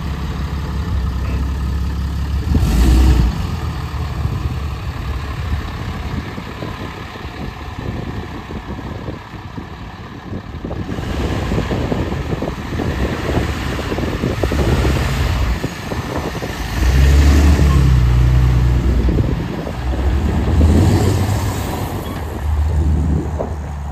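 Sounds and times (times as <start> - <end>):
truck engine idling: 0.0 - 23.9.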